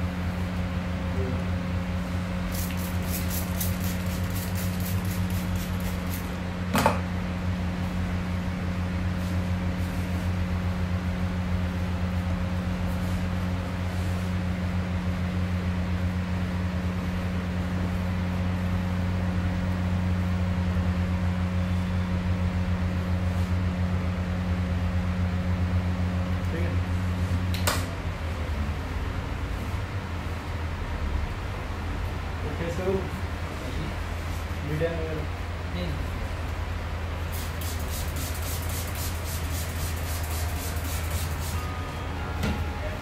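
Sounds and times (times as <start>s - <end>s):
electric motor hum: 37.1s - 43.0s.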